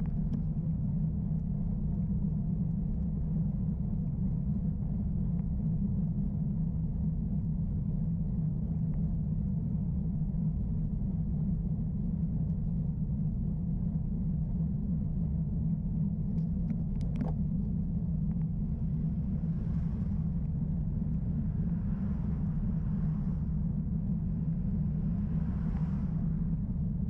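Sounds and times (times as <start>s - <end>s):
low rumble of bicycle riding: 0.0s - 27.0s
cars passing: 18.7s - 27.0s.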